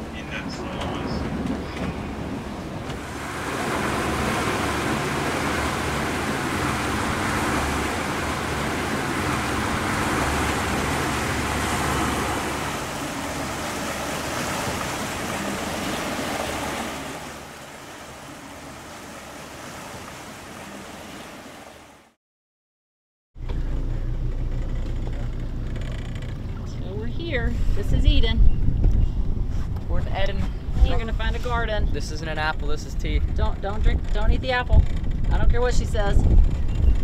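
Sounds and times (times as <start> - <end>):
rushing sea water: 0.0 - 22.2
wind: 0.0 - 22.2, 23.4 - 37.0.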